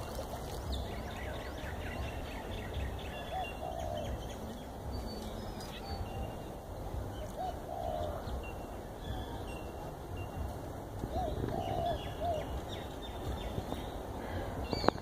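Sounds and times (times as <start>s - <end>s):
small birds chirping: 0.0s - 15.0s
bird cooing: 3.2s - 4.6s, 7.2s - 9.5s, 11.1s - 13.0s.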